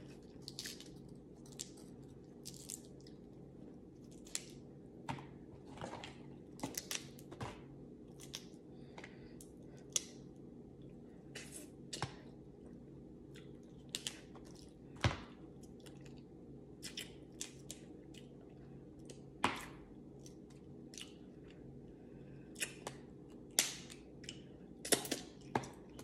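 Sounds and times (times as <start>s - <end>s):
faint chewing: 13.2s - 14.8s, 20.2s - 26.0s.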